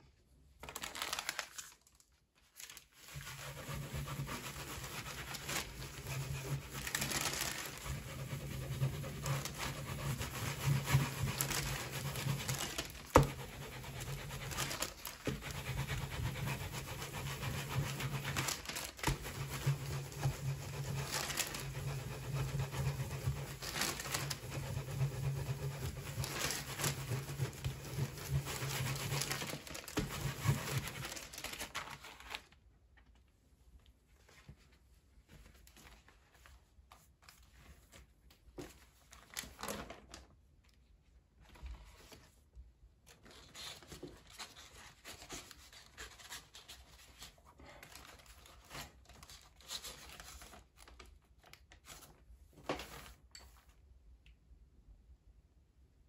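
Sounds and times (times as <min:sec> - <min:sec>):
paper rustling: 0:00.6 - 0:33.2, 0:34.2 - 0:40.3, 0:43.1 - 0:53.7
scratchy rubbing on paper: 0:03.0 - 0:31.7.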